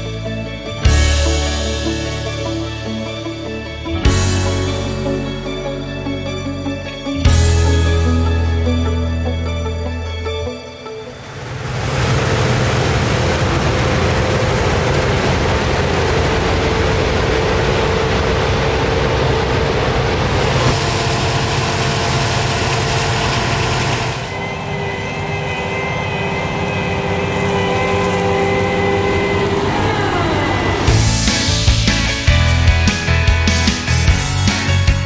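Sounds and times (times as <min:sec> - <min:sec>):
steady high whines: 0:00.0 - 0:33.1
heavy engine drone: 0:00.0 - 0:35.0
machines rushing noise: 0:10.9 - 0:34.0.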